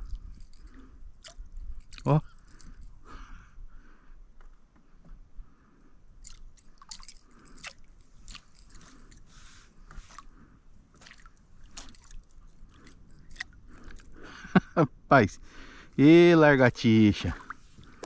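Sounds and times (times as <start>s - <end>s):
water splashing around kayak: 6.2s - 14.2s, 17.2s - 18.0s.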